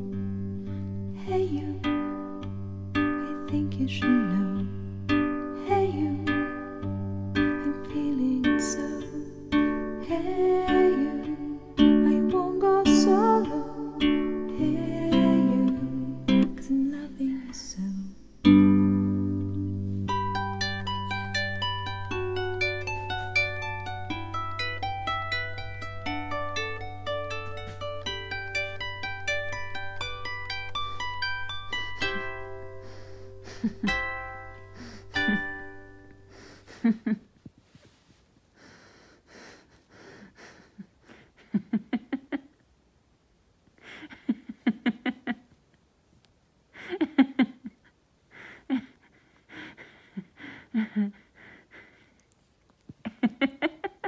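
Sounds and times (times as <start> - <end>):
plucked string notes: 0.0 - 36.3
breathy in-breaths: 31.8 - 33.8, 34.6 - 35.6, 38.5 - 41.4
person laughing: 31.8 - 34.2, 34.8 - 35.7, 36.3 - 37.4, 39.4 - 42.6, 43.8 - 45.5, 46.7 - 52.3, 53.0 - 54.0.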